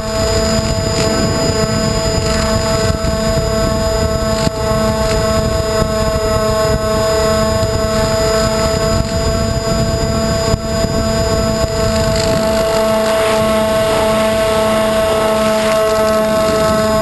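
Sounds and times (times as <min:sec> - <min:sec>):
electric motor whine: 0:00.0 - 0:17.0
wind rushing over microphone: 0:00.0 - 0:17.0.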